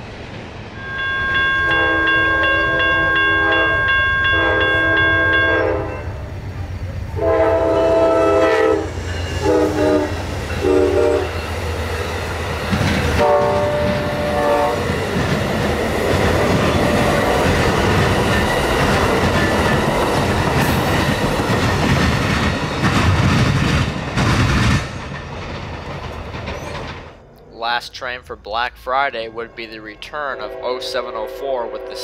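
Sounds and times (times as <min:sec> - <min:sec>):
train cars rumbling and clacking: 0:00.0 - 0:32.0
train horn blasts: 0:00.8 - 0:06.3, 0:07.2 - 0:11.4, 0:13.2 - 0:14.9, 0:16.7 - 0:17.4, 0:30.2 - 0:32.0.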